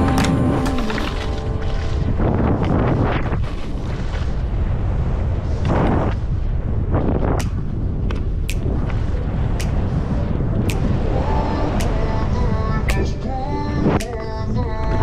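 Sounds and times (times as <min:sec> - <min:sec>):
wind buffeting microphone: 0:00.0 - 0:15.0
sharp clicks: 0:07.4 - 0:09.0, 0:09.6 - 0:09.9, 0:11.7 - 0:12.0.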